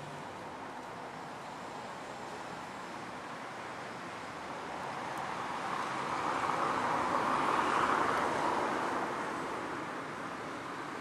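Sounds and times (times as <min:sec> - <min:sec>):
passing car rushing: 0:04.9 - 0:11.0.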